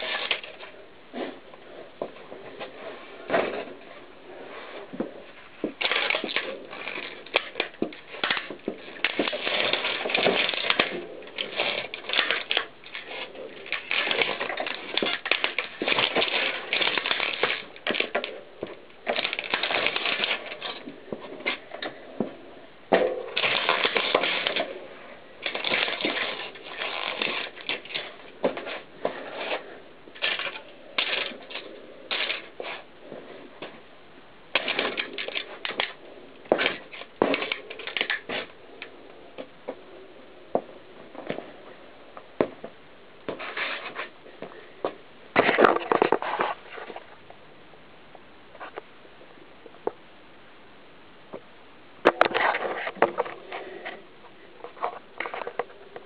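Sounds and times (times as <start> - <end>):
plastic cassettes cracking under tyre: 0.0 - 0.7, 5.6 - 22.0, 22.9 - 24.8, 25.4 - 32.8, 34.5 - 39.5.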